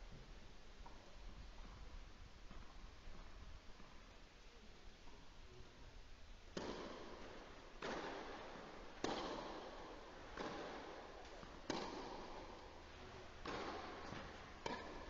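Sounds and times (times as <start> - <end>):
tennis racket hitting ball: 6.5 - 15.0.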